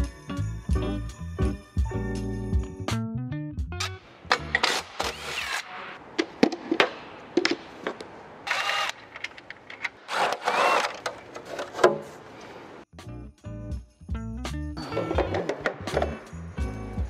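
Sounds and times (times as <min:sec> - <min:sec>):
cordless drill whirring: 0:08.5 - 0:09.0, 0:10.1 - 0:11.1.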